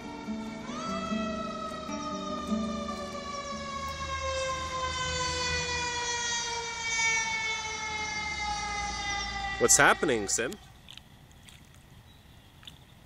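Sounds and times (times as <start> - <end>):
fire truck siren wailing: 0.0 - 10.6.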